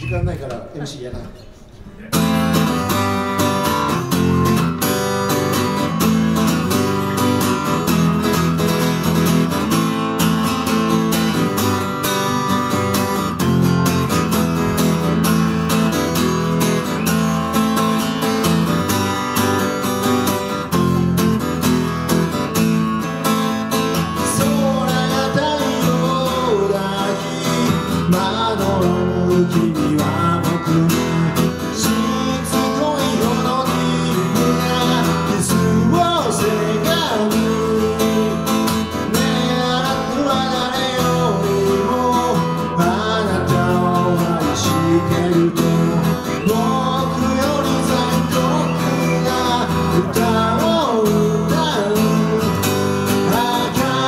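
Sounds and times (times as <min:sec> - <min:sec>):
acoustic guitar strumming: 0:01.8 - 0:54.0
man singing: 0:23.7 - 0:54.0.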